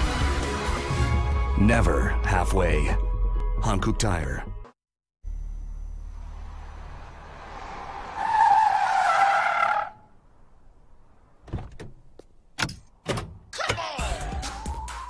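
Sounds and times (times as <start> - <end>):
car tyres squealing: 6.3 - 10.8.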